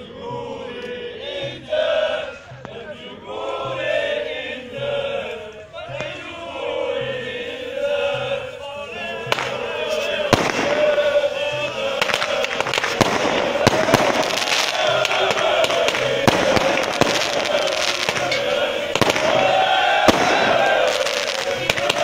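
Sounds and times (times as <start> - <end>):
crowd chanting: 0.0 - 22.0
firecrackers popping: 7.5 - 22.0.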